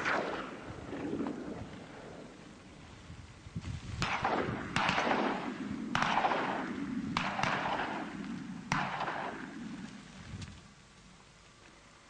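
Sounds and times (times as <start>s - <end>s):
shotgun shots echoing: 0.0s - 2.1s, 4.0s - 9.9s.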